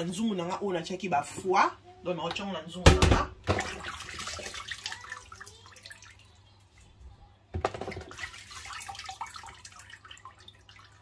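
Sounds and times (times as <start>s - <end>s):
water sloshing in a basin: 3.0s - 11.0s
water dripping and trickling: 3.4s - 11.0s.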